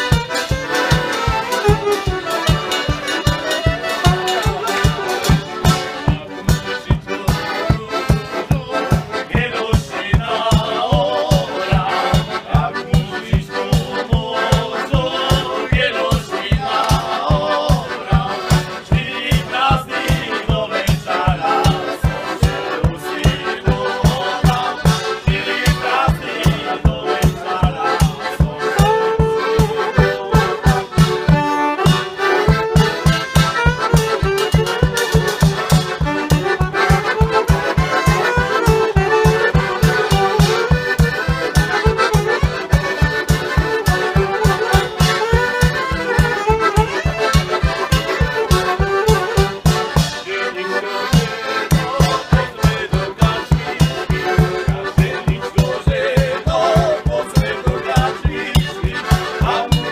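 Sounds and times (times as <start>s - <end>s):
saxophone: 0.0s - 6.3s, 28.6s - 52.4s
bass drum and cymbal beat: 0.0s - 16.7s, 17.3s - 50.3s, 51.1s - 59.9s
accordions: 0.0s - 59.9s
folk band playing: 0.0s - 59.9s.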